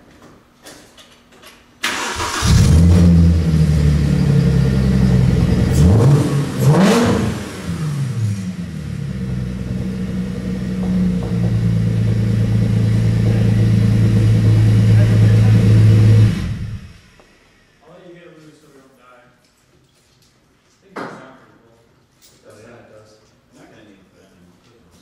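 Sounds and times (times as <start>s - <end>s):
car engine idling and revving: 2.1s - 17.6s.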